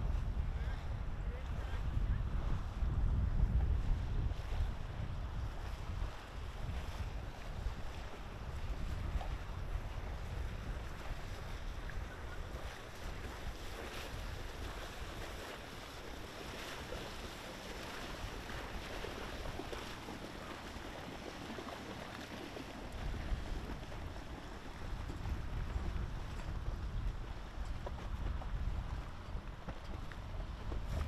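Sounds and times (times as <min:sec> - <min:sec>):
boat wake splashing on bank: 0:00.0 - 0:31.0
wind rumble on microphone: 0:00.0 - 0:31.0.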